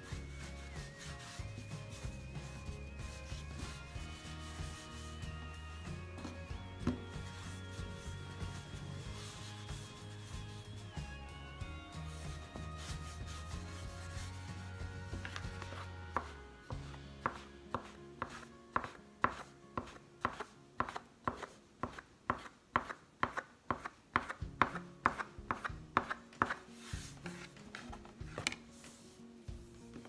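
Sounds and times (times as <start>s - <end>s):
bench scraper chopping dough: 17.3s - 26.7s.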